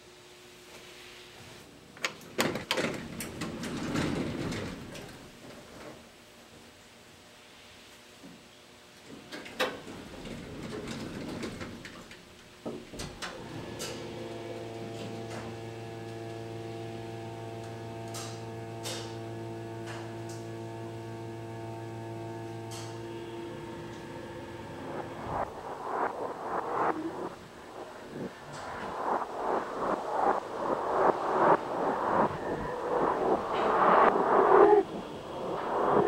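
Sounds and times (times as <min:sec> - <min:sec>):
elevator mechanical hum: 0:02.1 - 0:06.1, 0:09.4 - 0:36.0
elevator doors sliding shut: 0:02.3 - 0:05.3, 0:09.4 - 0:12.2.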